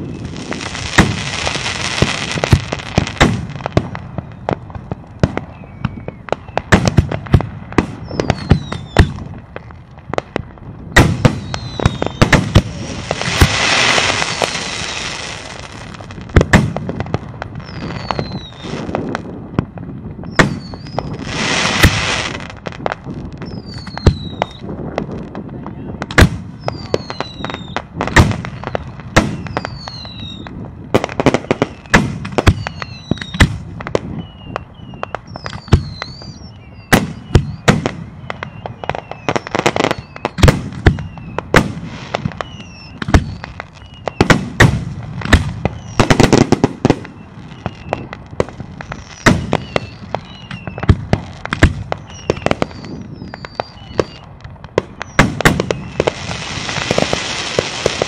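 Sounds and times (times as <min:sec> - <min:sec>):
fireworks booming: 0:00.0 - 0:58.0
high falling whistles: 0:11.3 - 0:12.4, 0:13.8 - 0:15.2, 0:17.6 - 0:18.8, 0:20.3 - 0:21.4, 0:23.4 - 0:24.7, 0:28.5 - 0:30.5, 0:31.5 - 0:33.4, 0:34.2 - 0:41.4, 0:42.2 - 0:44.3, 0:45.7 - 0:46.2, 0:47.0 - 0:48.1, 0:49.0 - 0:50.9, 0:52.0 - 0:54.3, 0:55.0 - 0:56.2.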